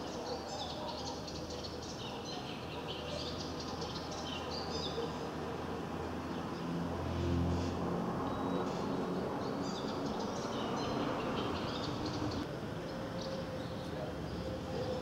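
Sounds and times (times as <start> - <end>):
small birds chirping: 0.0 - 15.0
distant propeller aircraft drone: 3.1 - 15.0.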